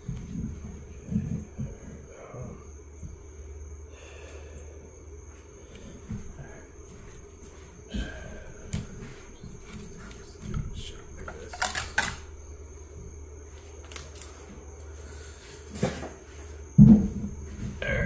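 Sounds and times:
low background hum: 0.0 - 18.0
sharp metal clicks: 11.3 - 12.3.

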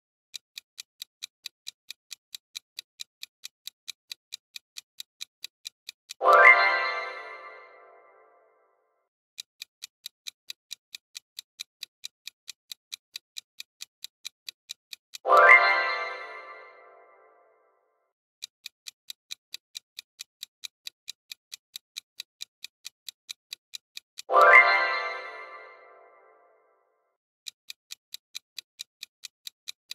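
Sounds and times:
clock ticking: 0.3 - 8.2, 9.4 - 17.3, 18.4 - 26.4, 27.4 - 29.9.

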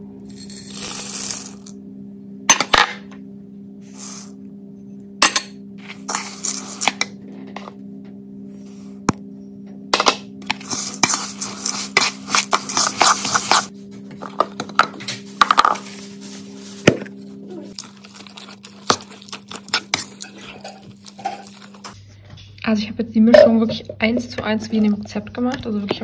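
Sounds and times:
seeds poured into bowl: 0.3 - 1.7.

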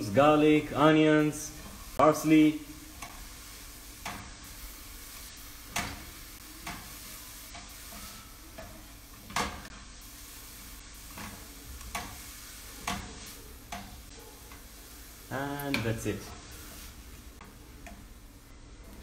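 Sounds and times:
food sizzling in a frying pan: 0.0 - 19.0
utensil scraping a pan: 3.0 - 9.7, 15.8 - 17.2.

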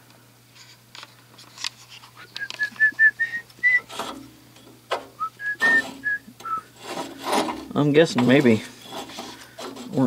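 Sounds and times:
person whistling a tune: 2.2 - 3.9, 5.2 - 6.7.

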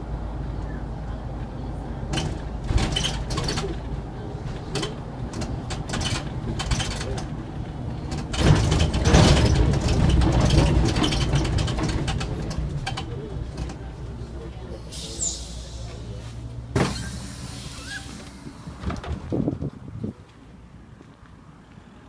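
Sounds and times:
bus road and drivetrain rumble: 0.0 - 22.0
interior rattles and clicks: 2.1 - 14.3, 18.8 - 19.8
wheels on cobblestones: 2.4 - 14.4.

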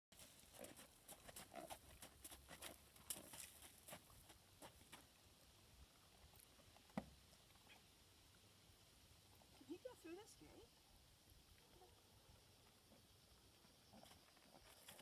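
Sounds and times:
horse hoofbeats on sand: 0.2 - 5.2.

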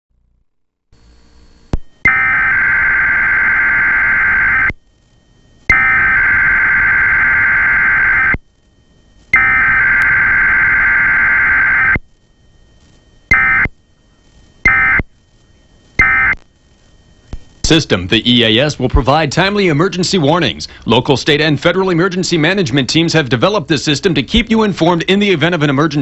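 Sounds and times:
digital data tone bursts: 2.0 - 4.7, 5.7 - 8.4, 9.4 - 12.0, 13.3 - 13.7, 14.6 - 15.0, 16.0 - 16.4.

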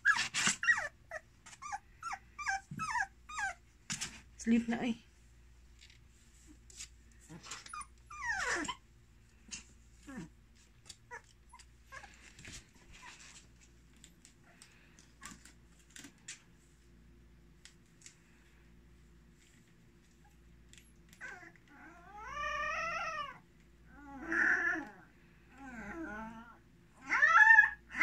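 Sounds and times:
puppy scratching in cardboard box: 0.0 - 1.7
puppy whining: 0.0 - 3.7, 7.3 - 8.9, 9.5 - 13.5, 20.2 - 28.0.

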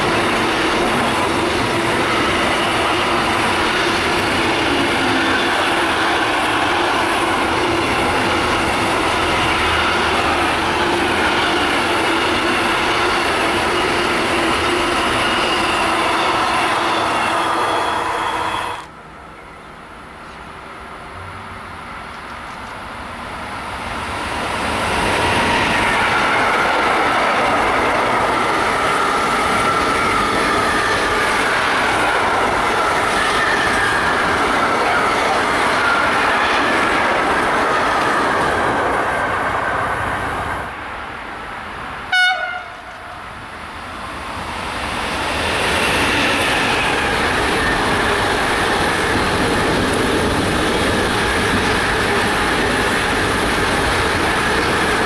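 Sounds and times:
train wheels rumbling on track: 0.0 - 55.0
train horn blast: 42.1 - 43.2.

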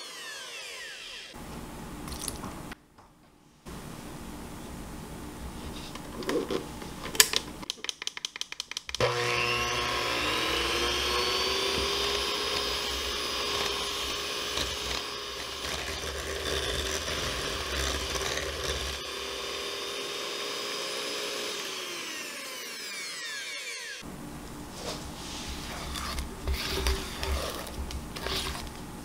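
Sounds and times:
electric hand mixer whining: 0.0 - 1.4, 9.0 - 24.0, 25.9 - 28.8.

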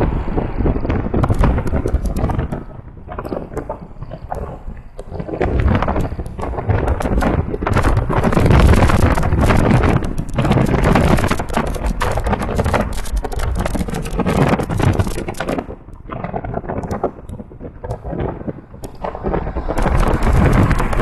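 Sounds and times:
car road noise at speed: 0.0 - 3.0, 18.8 - 21.0
wind buffeting microphone: 0.0 - 21.0.

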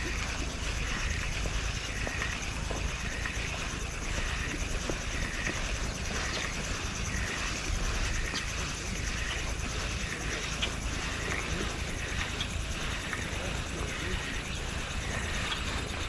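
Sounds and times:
fishing reel whirring and ticking: 0.0 - 16.0
wind buffeting microphone: 0.0 - 16.0.

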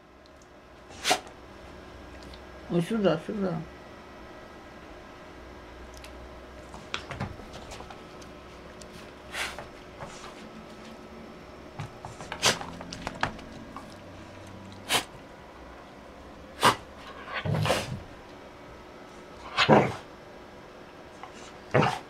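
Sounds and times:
dog barking: 21.8 - 22.0.

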